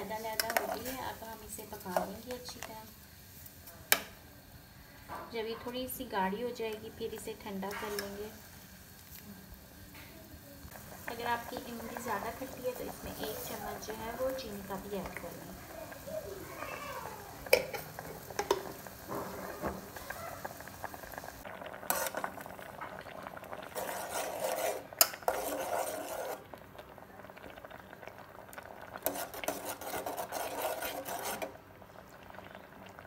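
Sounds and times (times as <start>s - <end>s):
metal spoon stirring thick pulp: 23.6s - 26.5s, 29.0s - 31.6s.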